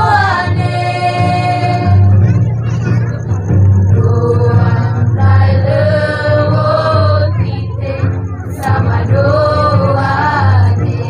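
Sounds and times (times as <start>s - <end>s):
young women singing together: 0.0s - 2.2s, 3.9s - 11.0s.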